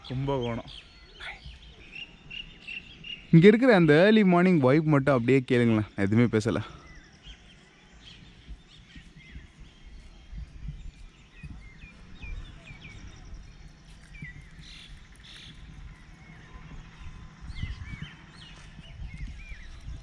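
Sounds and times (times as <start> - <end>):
birds chirping: 0.0 - 20.0
low rumble: 8.2 - 20.0.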